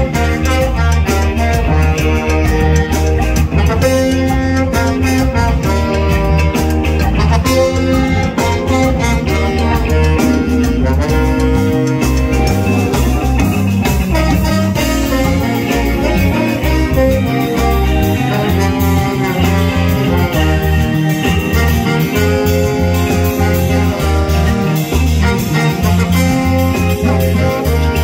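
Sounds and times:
drum kit beat: 0:00.0 - 0:28.0
electric guitar: 0:00.0 - 0:28.0
saxophone: 0:00.0 - 0:28.0
trombone: 0:00.0 - 0:28.0.

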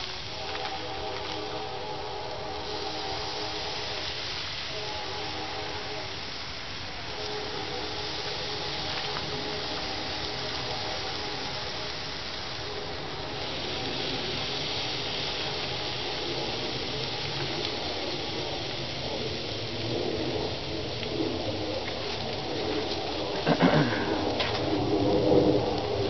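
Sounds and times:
meat sizzling on a grill: 0:00.0 - 0:26.0
dove cooing: 0:22.7 - 0:24.4.

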